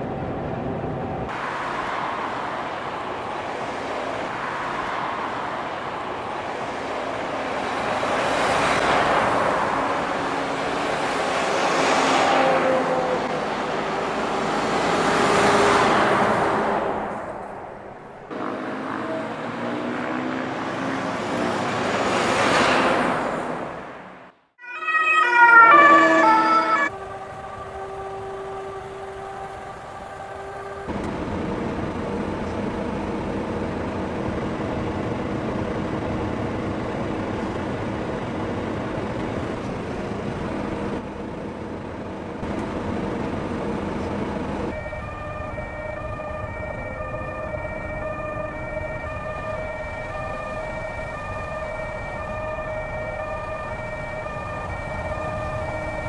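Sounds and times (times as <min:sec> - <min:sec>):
road and engine noise: 0:00.0 - 0:56.0
fire engine two-tone siren: 0:07.3 - 0:16.4, 0:18.6 - 0:19.8, 0:24.6 - 0:31.9, 0:44.6 - 0:56.0.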